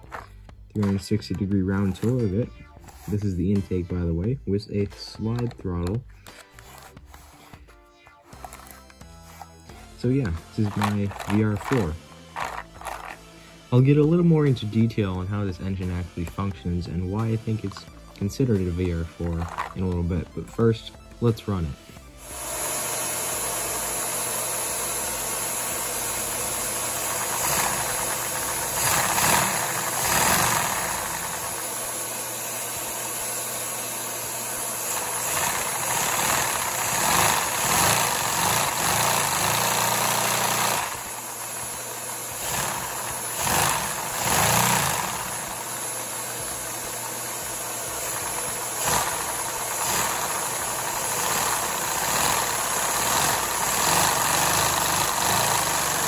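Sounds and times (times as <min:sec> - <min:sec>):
toy engine pistons clattering: 0:00.0 - 0:03.4, 0:05.2 - 0:07.5, 0:08.4 - 0:13.2, 0:17.2 - 0:20.2, 0:25.1 - 0:56.0.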